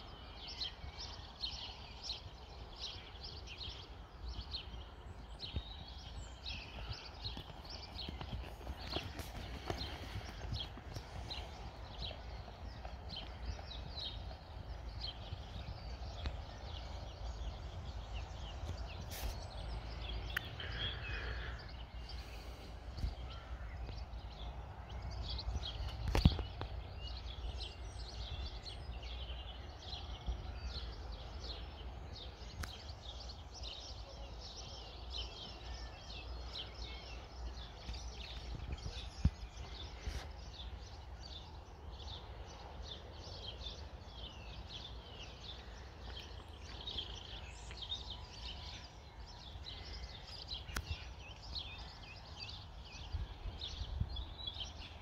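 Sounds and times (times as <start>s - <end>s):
birds singing: 0.0s - 55.0s
hoofbeats on sand: 0.6s - 21.5s, 34.5s - 42.2s.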